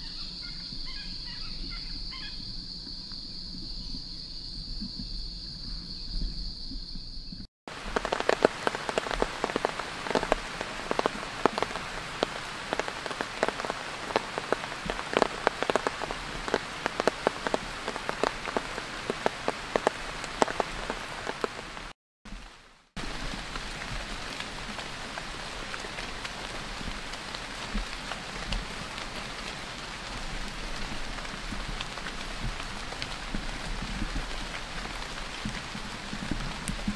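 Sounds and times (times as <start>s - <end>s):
insects droning: 0.0s - 21.9s
large raindrops tapping: 7.7s - 36.9s.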